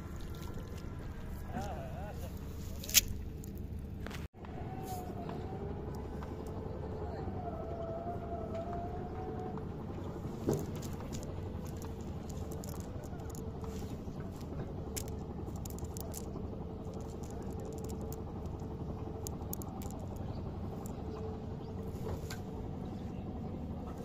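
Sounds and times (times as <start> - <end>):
wet net clicks and rustles: 0.0 - 0.9, 2.6 - 4.3, 10.5 - 21.0
low rumble: 0.0 - 23.9
faint steady hum: 0.0 - 24.0.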